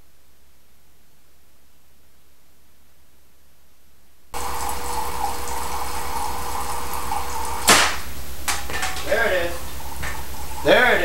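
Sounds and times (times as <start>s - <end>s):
water streaming into cans: 4.4s - 11.0s
sharp electric crack: 7.6s - 8.2s.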